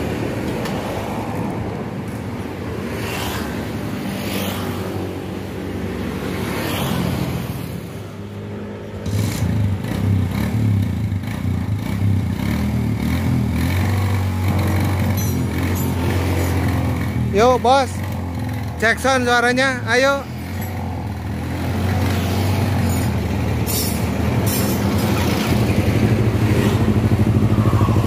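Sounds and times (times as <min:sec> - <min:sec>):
vehicle engine running: 0:09.2 - 0:28.0
hand tools scraping metal: 0:14.5 - 0:16.8, 0:22.6 - 0:25.6.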